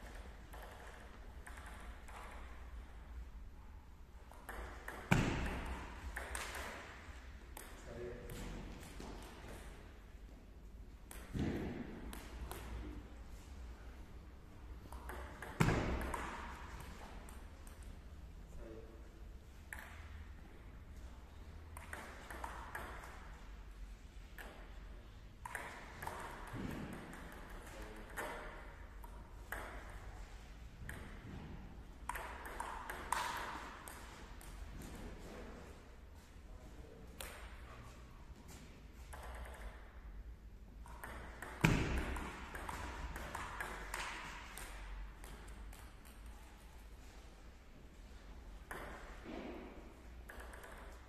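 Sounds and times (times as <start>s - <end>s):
table tennis ball clicking: 0.2s - 2.5s, 14.9s - 17.9s, 32.1s - 34.6s, 50.2s - 51.0s.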